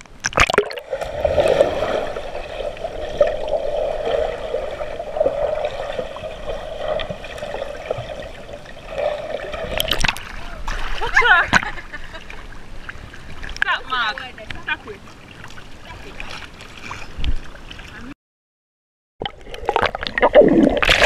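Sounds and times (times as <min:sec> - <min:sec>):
water splashing: 0:00.0 - 0:18.1, 0:19.2 - 0:21.0
muffled underwater bubbling: 0:19.2 - 0:21.0.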